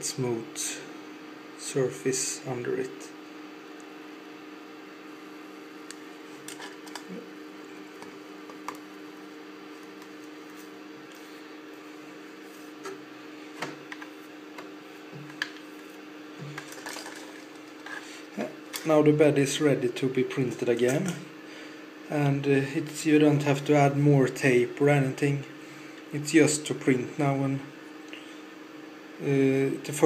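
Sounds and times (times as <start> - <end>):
low electrical hum: 0.0 - 30.0.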